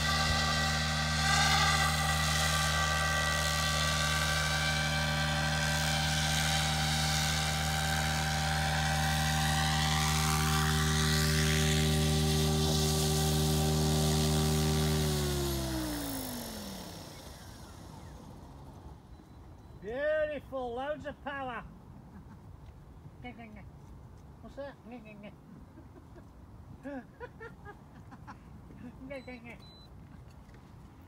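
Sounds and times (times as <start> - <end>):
high whine sweeping in pitch: 0.0 - 19.3
model helicopter drone: 0.0 - 19.8.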